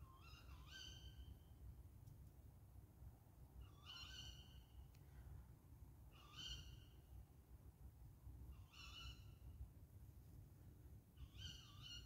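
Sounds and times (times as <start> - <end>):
owl calling: 0.2 - 1.2, 6.2 - 6.8, 11.2 - 12.0.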